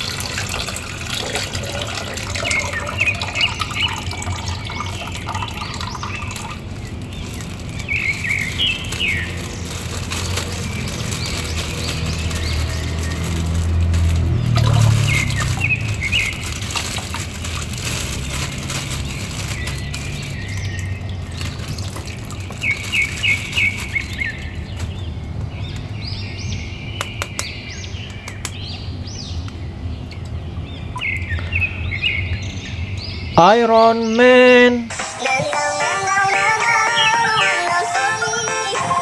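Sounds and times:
plastic bag crinkling: 0:00.0 - 0:25.2
birds chirping: 0:00.0 - 0:39.0.

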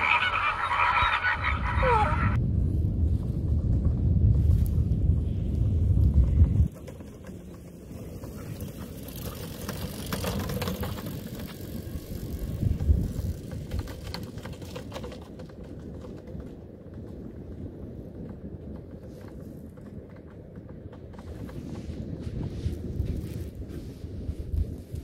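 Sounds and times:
wind blast on microphone: 0:00.0 - 0:06.8, 0:15.7 - 0:25.0
bike trailer rattling on dirt track: 0:03.2 - 0:23.4.

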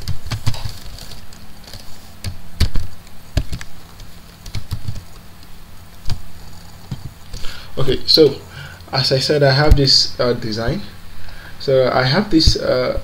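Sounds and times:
computer keyboard typing: 0:00.0 - 0:05.3.

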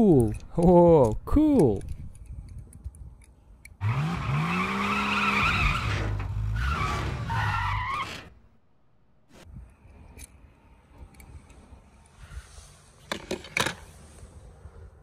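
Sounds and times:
race car engine revving: 0:03.8 - 0:07.3
tyres screeching: 0:03.8 - 0:08.5.

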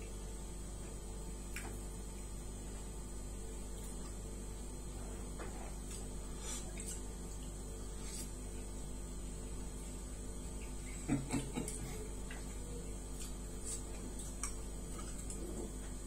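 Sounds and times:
steady low hum: 0:00.0 - 0:16.0
chewing and mouth sounds: 0:01.4 - 0:02.3, 0:05.4 - 0:08.7, 0:10.4 - 0:16.0.

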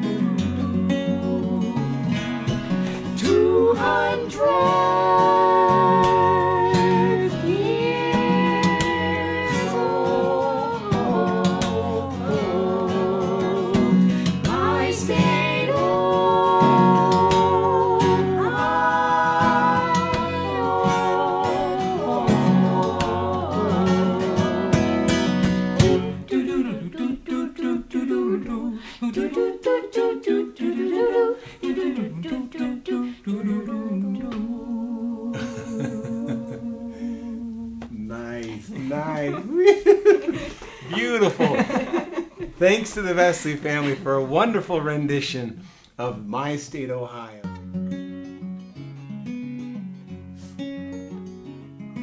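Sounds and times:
strummed acoustic guitar: 0:00.0 - 0:26.4, 0:47.4 - 0:52.0
mixed voices singing in harmony: 0:00.4 - 0:40.8.

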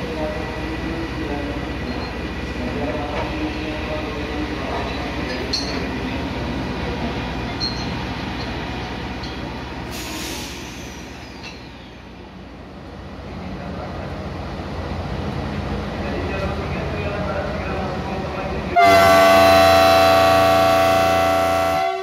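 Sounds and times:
freight train rumbling: 0:00.0 - 0:22.0
brief hiss: 0:09.9 - 0:11.4.

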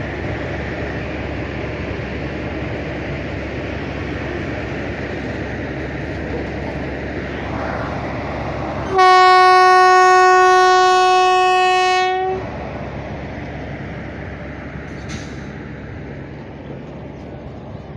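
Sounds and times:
train rumbling: 0:00.0 - 0:17.9
locomotive horn blast: 0:08.9 - 0:12.5.

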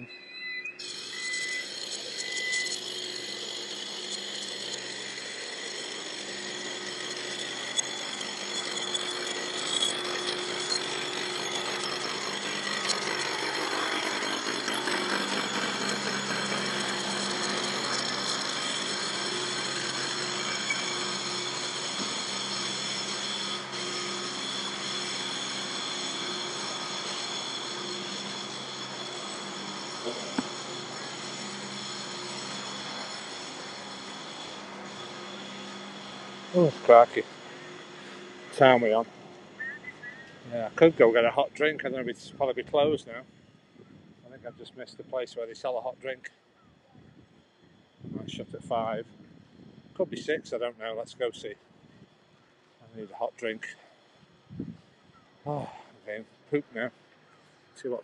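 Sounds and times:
high steady tones: 0:00.0 - 0:28.2
roadworks machinery running: 0:00.8 - 0:46.1.

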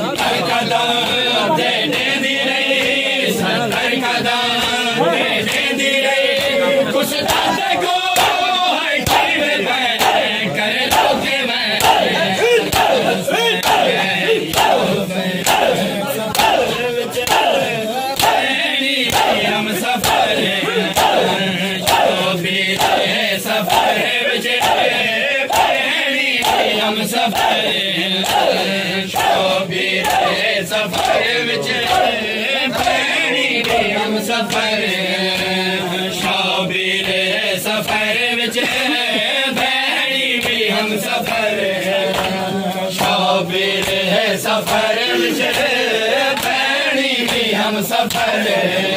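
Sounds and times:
crowd of men chanting: 0:00.0 - 0:48.9
hands slapping bare chests: 0:08.2 - 0:09.4, 0:10.0 - 0:11.2, 0:11.8 - 0:18.5, 0:19.1 - 0:23.1, 0:24.6 - 0:24.9, 0:25.5 - 0:25.8, 0:30.0 - 0:32.2, 0:42.1 - 0:42.4.

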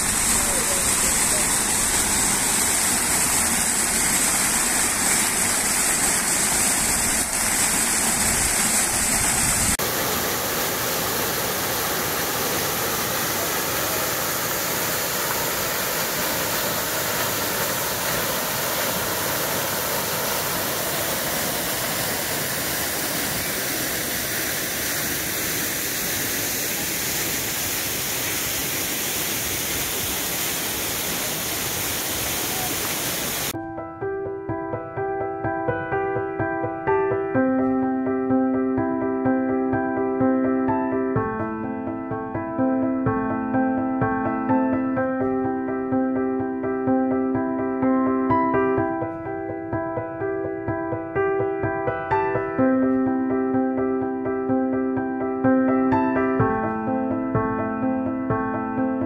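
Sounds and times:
fountain water splashing: 0:00.0 - 0:33.6
water cascading over stone: 0:00.0 - 0:33.6.

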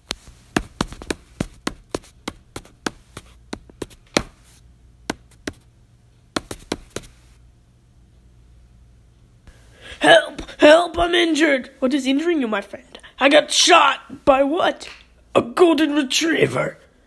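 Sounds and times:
sharp taps: 0:00.0 - 0:04.4, 0:05.1 - 0:05.6, 0:06.4 - 0:07.2.

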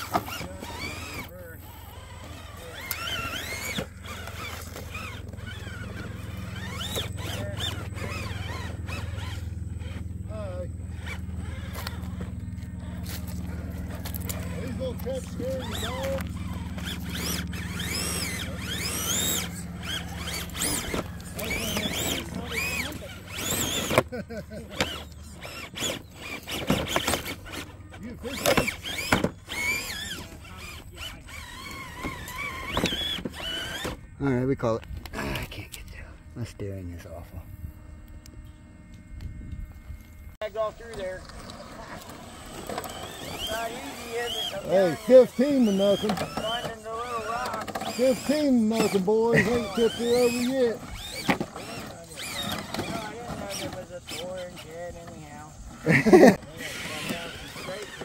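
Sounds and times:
electric motor whining: 0:00.0 - 0:58.0
steady low hum: 0:00.0 - 0:58.0.

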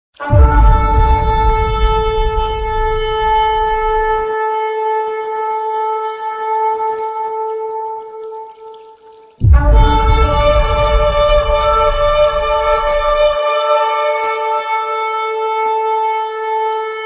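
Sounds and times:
long steady horn blast: 0:00.2 - 0:04.3, 0:09.4 - 0:16.3
deep rumble: 0:00.3 - 0:04.3, 0:09.4 - 0:13.4.

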